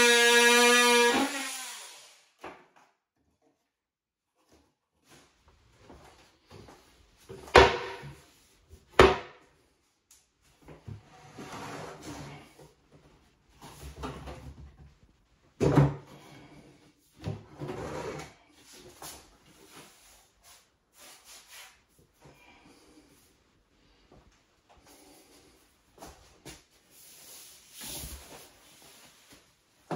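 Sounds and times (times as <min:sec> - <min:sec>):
cabinet scraping and shuffling: 0:10.8 - 0:12.6.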